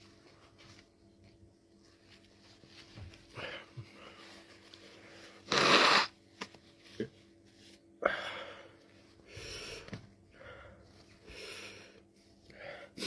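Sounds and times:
person blowing nose: 5.4s - 6.2s.

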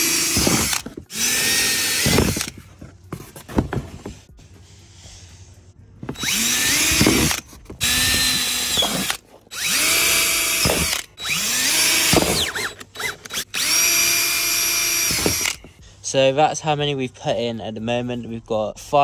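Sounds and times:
cordless drill boring: 0.0s - 2.6s, 6.1s - 15.7s.

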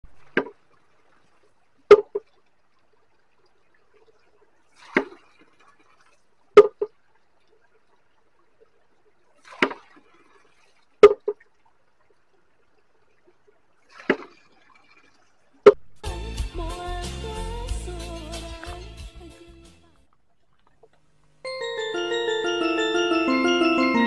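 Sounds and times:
water splashing: 0.1s - 15.8s.

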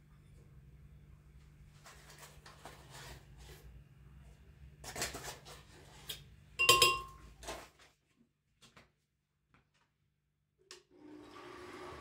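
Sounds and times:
utensil scraping: 1.8s - 3.8s
sharp ringing clink on glass: 6.6s - 7.2s.

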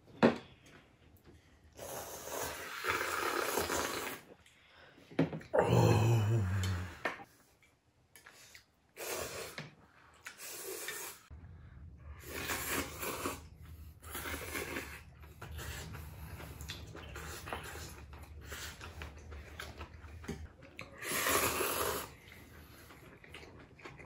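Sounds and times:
noodles slurped: 1.8s - 4.4s, 12.2s - 24.0s.

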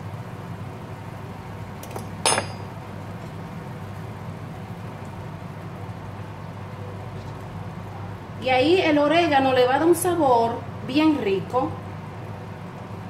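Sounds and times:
metal spoon clinking on pan: 2.2s - 2.7s.

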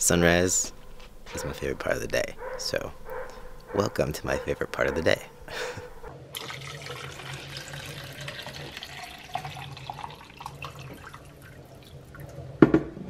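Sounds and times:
water pouring into plastic bottle: 6.4s - 12.3s.

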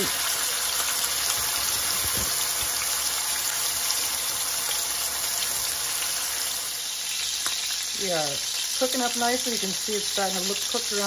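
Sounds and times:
chicken sizzling in oil: 0.0s - 11.0s.

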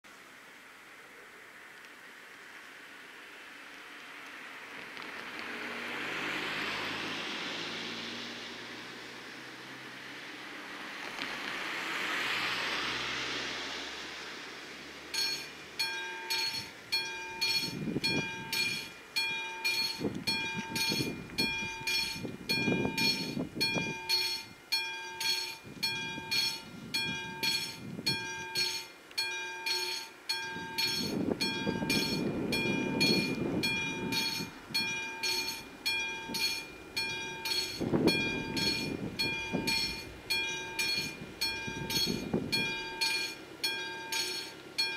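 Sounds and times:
car driving over crossing: 4.9s - 44.9s
level crossing warning bell: 15.1s - 44.9s.

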